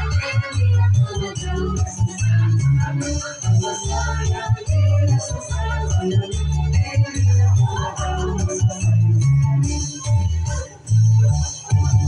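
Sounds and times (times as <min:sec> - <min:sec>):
upbeat dance music: 0:00.0 - 0:12.0.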